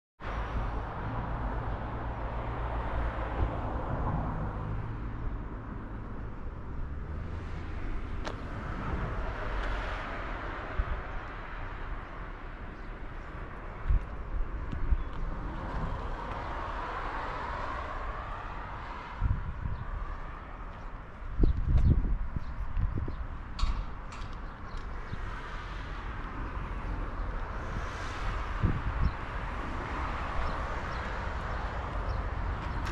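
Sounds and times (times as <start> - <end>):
footsteps on path: 13.8 - 16.5, 20.6 - 21.0.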